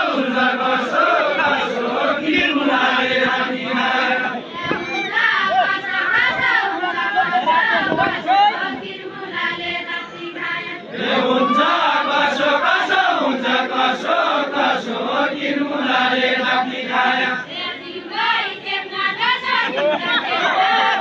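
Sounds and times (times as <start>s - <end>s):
men singing in unison: 0.0s - 4.5s, 10.9s - 17.6s.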